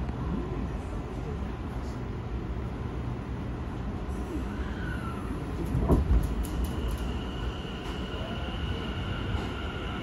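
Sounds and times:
train inverter whine: 0:00.0 - 0:10.0
wheels rumbling on rails: 0:04.1 - 0:10.0.

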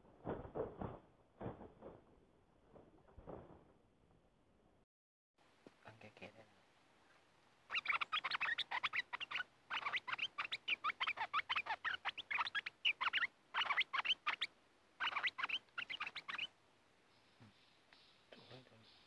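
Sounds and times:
bird harsh chattering calls: 0:07.7 - 0:16.5.

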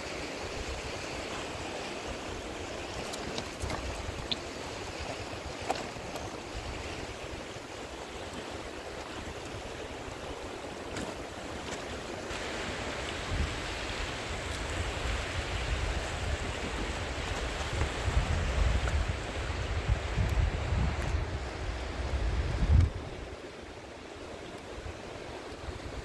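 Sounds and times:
stream water rushing: 0:00.0 - 0:26.0.

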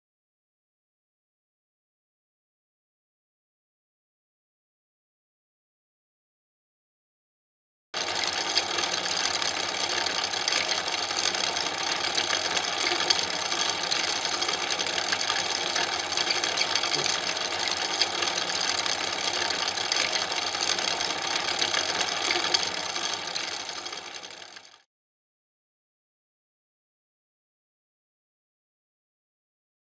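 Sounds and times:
film projector clattering: 0:08.0 - 0:24.8.

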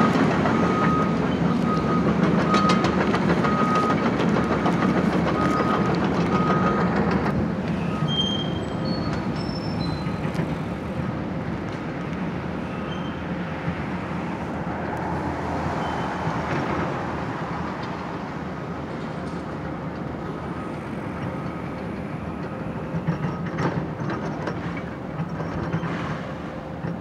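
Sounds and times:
excavator diesel engine running: 0:00.0 - 0:27.0.

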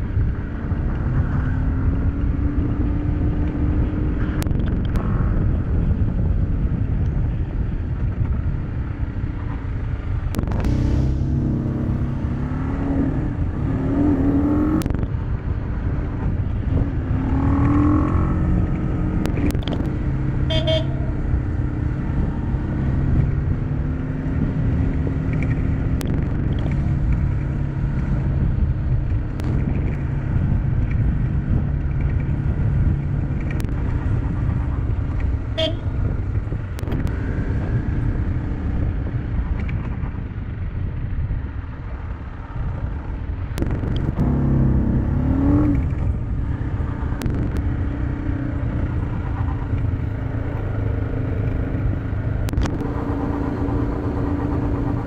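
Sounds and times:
motorcycle engine running: 0:00.0 - 0:41.2, 0:42.5 - 0:55.0
short horn beeps: 0:20.5 - 0:21.1, 0:35.6 - 0:35.9.

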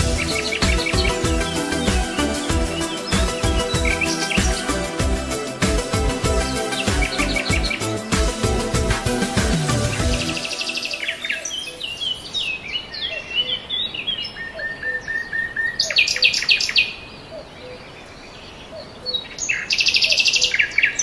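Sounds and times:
evenly spaced whistled notes: 0:00.0 - 0:08.3
harsh buzzy bird calls: 0:00.0 - 0:12.6
birds chirping and whistling: 0:00.0 - 0:17.0.

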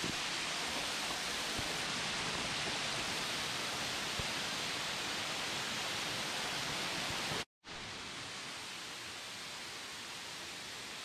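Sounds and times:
waterfall rushing: 0:00.0 - 0:07.4.

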